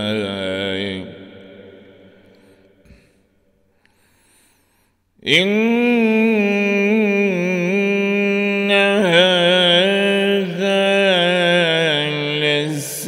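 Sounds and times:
man chanting melodically: 0:00.0 - 0:02.6, 0:05.2 - 0:13.0.

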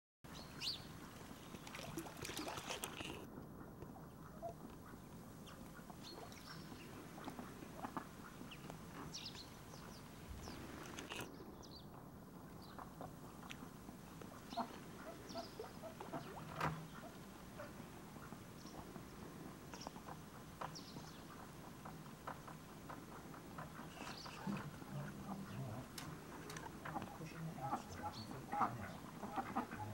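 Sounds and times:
ducks calling quietly: 0:00.5 - 0:11.3, 0:11.9 - 0:29.9.

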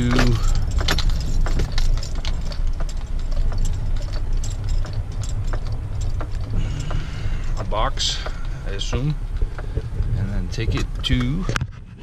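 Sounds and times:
gravel clicks and crunches: 0:00.0 - 0:12.0
vehicle engine and road rumble: 0:00.0 - 0:12.0.

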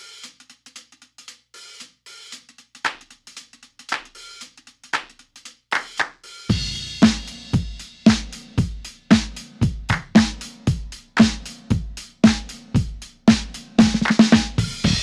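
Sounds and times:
hi-hat and cymbal ticks: 0:00.0 - 0:15.0
snare drum strikes: 0:02.8 - 0:03.2, 0:03.9 - 0:15.0
kick drum: 0:06.5 - 0:15.0.

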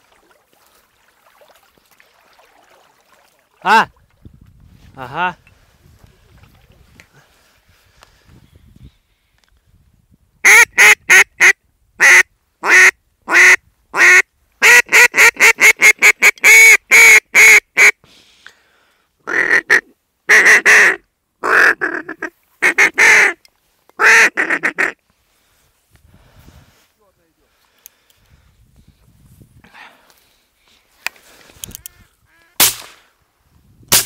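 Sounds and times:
duck call quacks: 0:10.4 - 0:18.0, 0:19.2 - 0:23.4, 0:24.0 - 0:25.0, 0:31.8 - 0:32.7.

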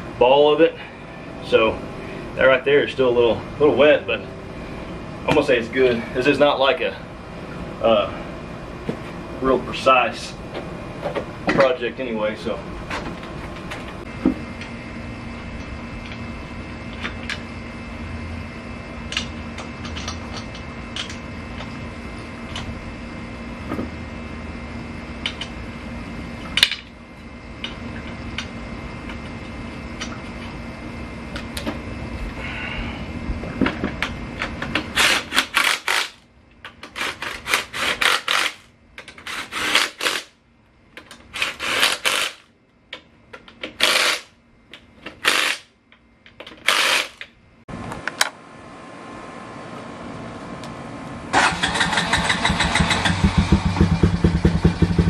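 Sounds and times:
faint steady hum: 0:00.0 - 0:54.5
cordless power tool bursts: 0:34.9 - 0:36.2, 0:36.9 - 0:40.3, 0:41.3 - 0:42.4, 0:43.8 - 0:44.3, 0:45.2 - 0:45.7, 0:46.6 - 0:47.2, 0:51.3 - 0:53.9.

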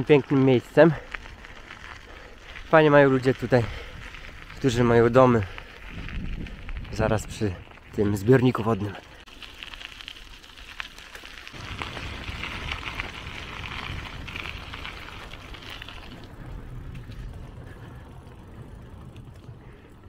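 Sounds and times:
bicycle tyres rolling on rough path: 0:00.0 - 0:20.0
low rumble: 0:11.6 - 0:20.0.

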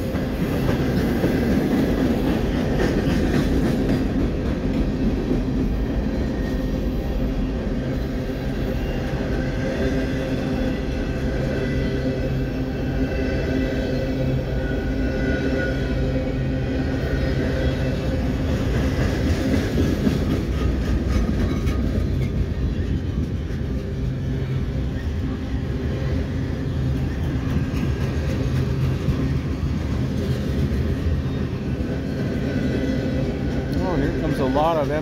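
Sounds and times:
freight train wheels rumbling: 0:00.0 - 0:35.0.

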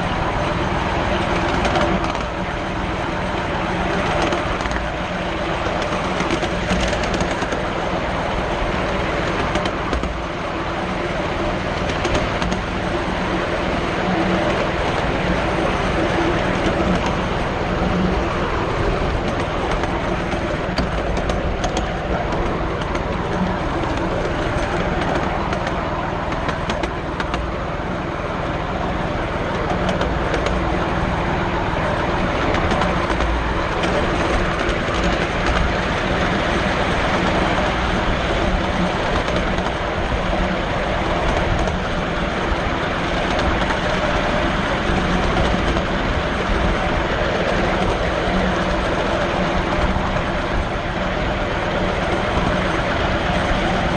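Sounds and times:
train wheels rumbling on rails: 0:00.0 - 0:53.9.

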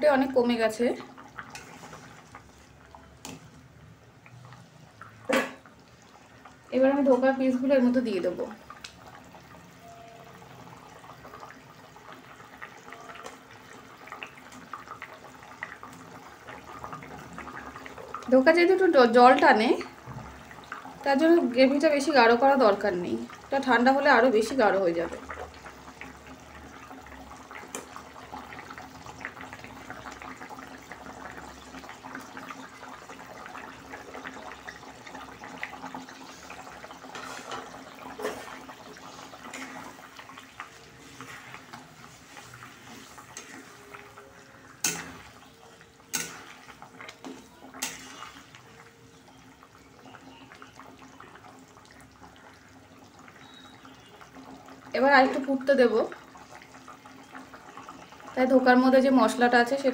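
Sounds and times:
gravy bubbling: 0:00.0 - 0:58.4
metal spatula stirring: 0:01.4 - 0:03.4, 0:37.1 - 0:49.0.

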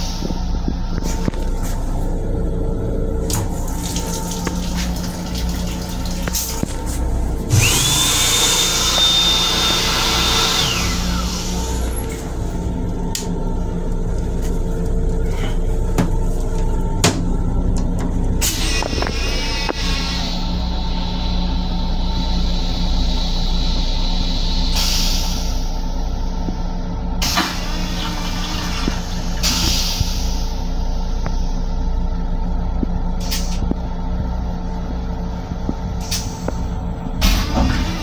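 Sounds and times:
motor whine: 0:06.2 - 0:24.7.

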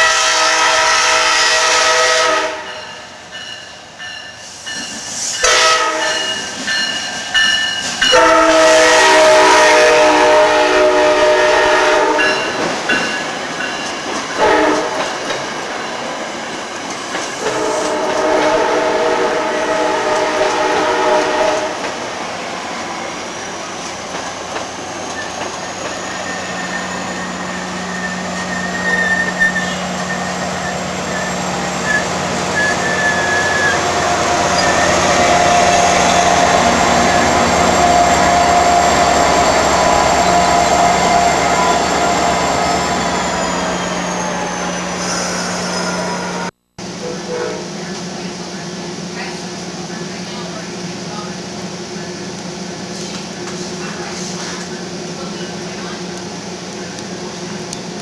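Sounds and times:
train horn chord: 0:00.0 - 0:03.1, 0:05.4 - 0:06.4, 0:08.1 - 0:12.5, 0:14.4 - 0:15.1, 0:17.4 - 0:21.9, 0:46.0 - 0:47.8
diesel locomotive engine hum: 0:00.0 - 0:58.0
train wheels clattering on rails: 0:03.3 - 0:08.3, 0:12.2 - 0:18.6, 0:23.8 - 0:26.4.

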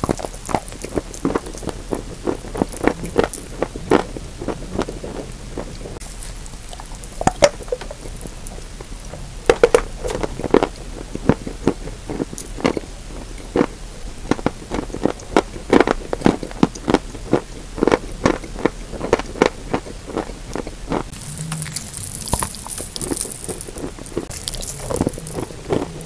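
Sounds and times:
person crunching chalk: 0:21.1 - 0:26.0.

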